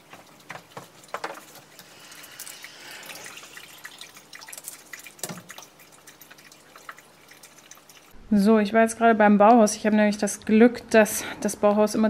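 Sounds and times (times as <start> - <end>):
water pouring into a glass: 0.0 - 8.2.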